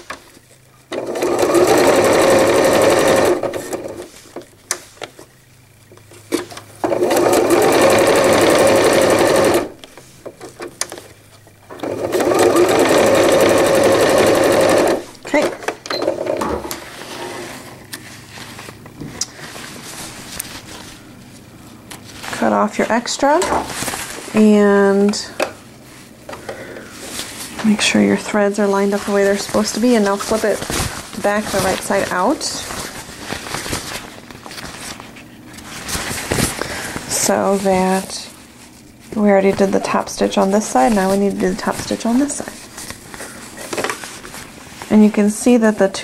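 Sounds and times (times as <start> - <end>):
electric sewing machine stitching: 0.9 - 4.1, 6.8 - 9.8, 11.7 - 15.4
fabric handling: 16.9 - 24.4, 27.1 - 44.9.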